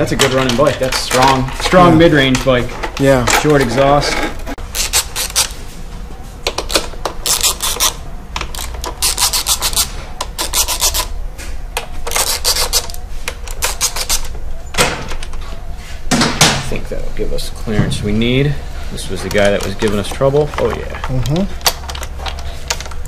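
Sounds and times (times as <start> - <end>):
steady low hum: 0.0 - 23.0
hand tool clicking and scraping: 0.1 - 5.6, 6.5 - 11.1, 12.0 - 14.4.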